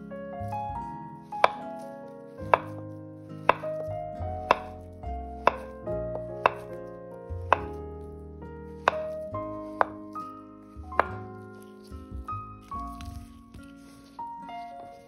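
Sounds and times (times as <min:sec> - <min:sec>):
knife tapping on cutting board: 0:01.4 - 0:01.6, 0:02.5 - 0:02.8, 0:03.4 - 0:03.7, 0:04.5 - 0:04.8, 0:05.4 - 0:06.7, 0:07.5 - 0:07.8, 0:08.9 - 0:09.2, 0:11.0 - 0:11.2.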